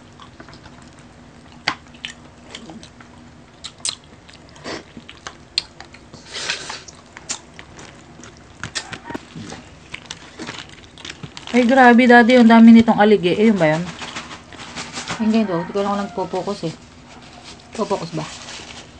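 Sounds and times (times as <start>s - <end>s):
chewing and crunching: 0.0s - 12.7s, 16.8s - 18.9s.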